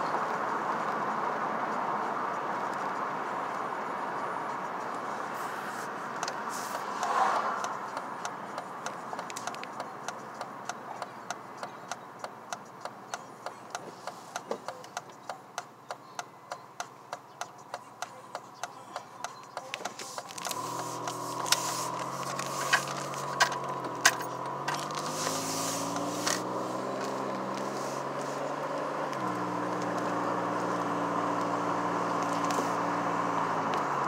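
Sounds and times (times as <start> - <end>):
car passing: 0.0 - 11.6, 19.6 - 34.0
road and engine noise: 0.0 - 34.0
turn signal ticking: 0.0 - 34.0.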